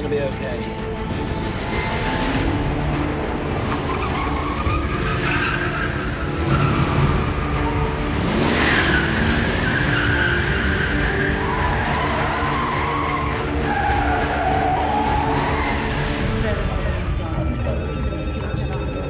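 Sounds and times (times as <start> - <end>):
car engines running: 0.0 - 17.4
car tyres squealing: 3.3 - 16.4.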